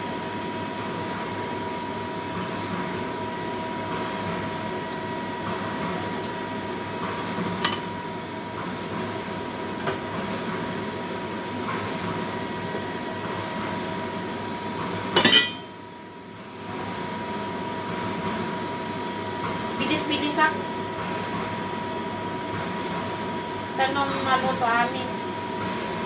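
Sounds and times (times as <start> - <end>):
kitchen clatter: 7.6 - 8.0, 15.1 - 15.7
utensils clinking on cookware: 15.2 - 15.7.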